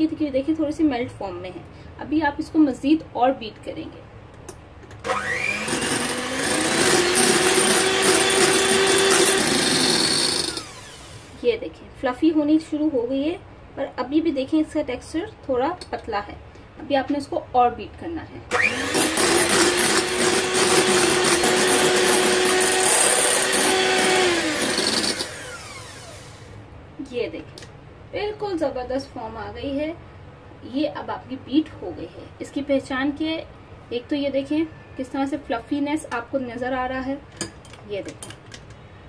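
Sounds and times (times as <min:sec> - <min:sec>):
electric hand mixer whirring: 0:05.0 - 0:11.4, 0:18.5 - 0:26.6.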